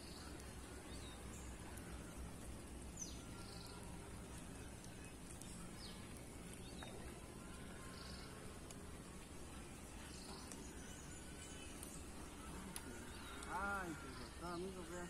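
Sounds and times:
steady low hiss: 0.0s - 15.0s.

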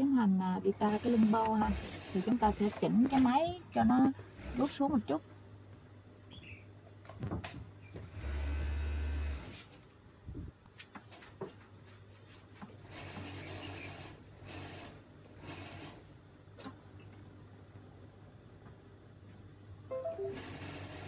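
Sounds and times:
sewing machine stitching: 0.8s - 3.2s, 20.2s - 21.0s.

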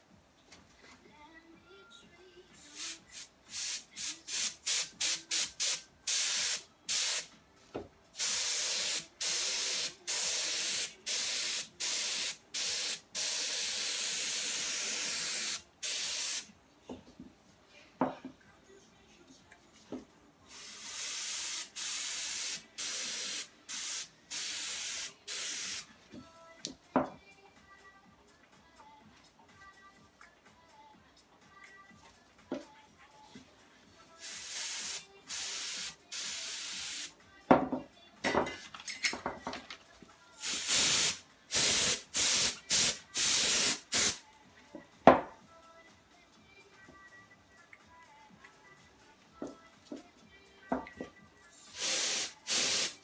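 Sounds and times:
compressed air hissing bursts: 2.8s - 7.3s, 8.2s - 16.5s, 20.5s - 25.9s, 34.2s - 37.1s, 40.4s - 44.2s, 51.7s - 53.0s.

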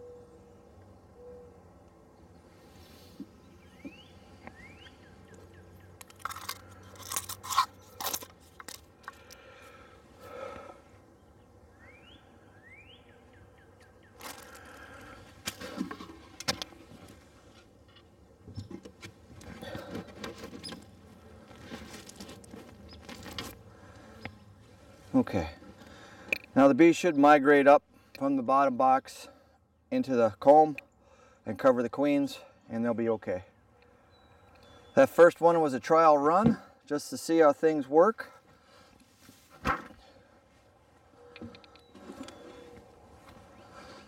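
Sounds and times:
rustling: 18.7s - 25.1s.

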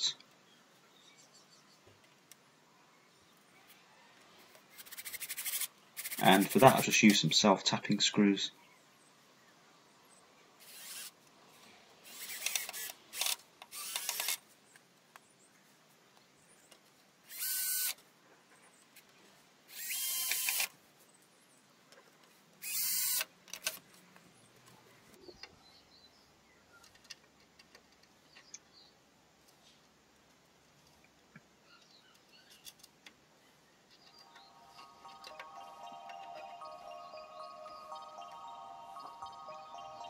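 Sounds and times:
cordless drill driving screws: 10.6s - 11.2s, 12.0s - 14.4s, 17.3s - 18.0s, 19.7s - 20.7s, 22.6s - 23.3s.

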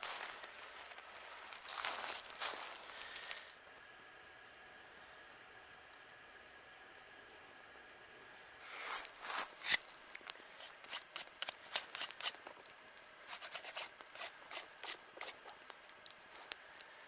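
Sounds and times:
knife shaving wooden stick: 8.6s - 17.0s.

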